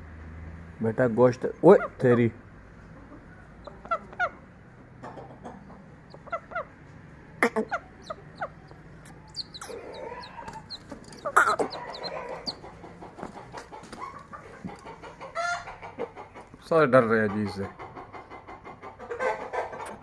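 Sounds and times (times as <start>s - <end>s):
chickens clucking: 1.2s - 20.0s.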